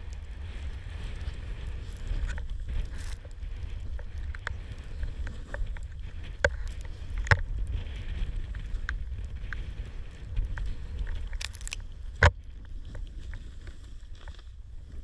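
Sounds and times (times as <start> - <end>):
snowboard riding through snow: 0.0 - 15.0
wind rumble on microphone: 0.0 - 15.0.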